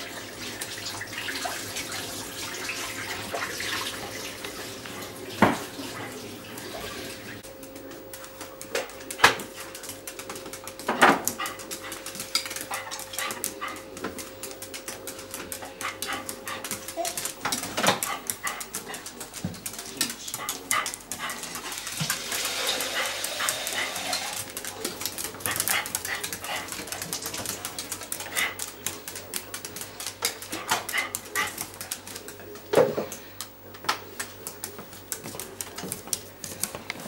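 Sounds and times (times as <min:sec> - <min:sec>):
claws clicking on tile floor: 0:07.5 - 0:37.0.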